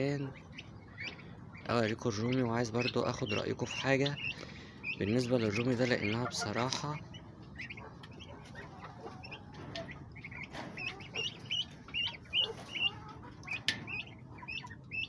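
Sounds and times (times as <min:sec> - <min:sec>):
turkey poults peeping: 0:00.0 - 0:15.0.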